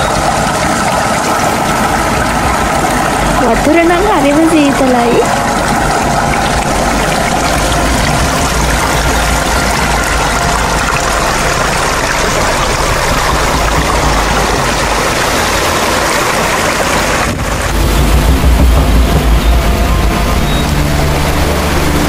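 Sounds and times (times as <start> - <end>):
waterfall pouring into pool: 0.0 - 22.0
deep low rumble: 1.7 - 22.0.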